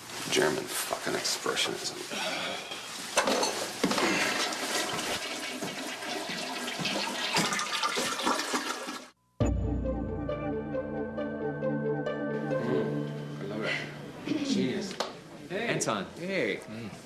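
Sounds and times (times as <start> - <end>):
music: 9.4 - 14.5.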